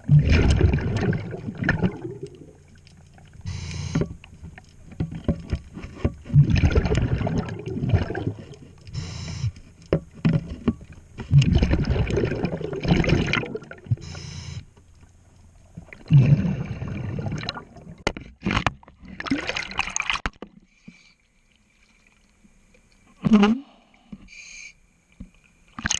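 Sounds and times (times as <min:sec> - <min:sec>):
exhaled bubbles rushing: 0:00.0 - 0:03.4, 0:06.3 - 0:08.7, 0:11.3 - 0:14.0, 0:15.7 - 0:18.0, 0:19.2 - 0:20.2
regulator inhale hiss: 0:03.4 - 0:04.0, 0:08.9 - 0:09.6, 0:14.0 - 0:14.7, 0:23.8 - 0:24.8.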